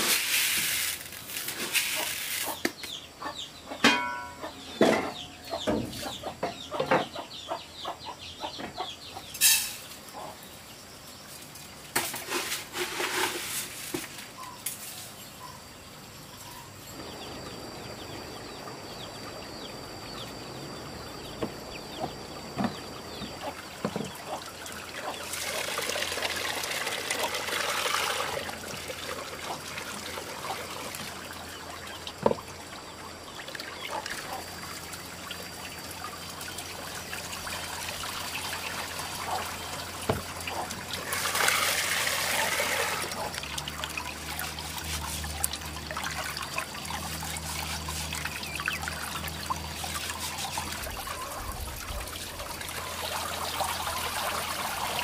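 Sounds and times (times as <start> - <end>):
trickle of running water: 0.0 - 3.0, 22.7 - 55.0
chickens clucking: 1.6 - 9.4, 10.1 - 10.4, 21.3 - 28.6, 33.6 - 43.9, 46.1 - 55.0.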